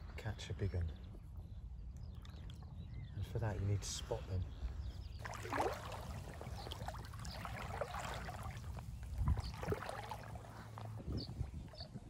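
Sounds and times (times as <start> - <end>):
wind rumbling on microphone: 0.0 - 12.0
stream trickling: 5.1 - 12.0.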